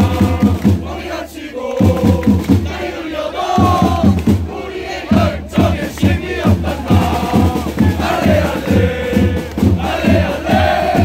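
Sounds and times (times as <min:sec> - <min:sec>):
crowd chanting in unison: 0:00.0 - 0:11.0
hands clapping: 0:00.4 - 0:00.8, 0:01.8 - 0:02.7, 0:04.0 - 0:04.4, 0:05.6 - 0:06.6, 0:09.4 - 0:09.8.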